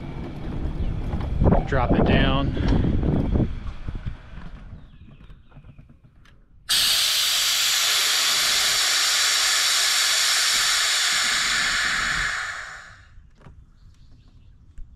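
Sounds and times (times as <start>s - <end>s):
air hissing from suspension: 6.7s - 13.1s.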